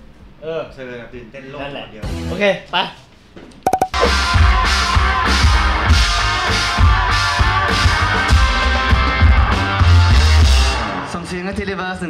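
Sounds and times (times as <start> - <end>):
bass guitar: 3.7 - 10.9.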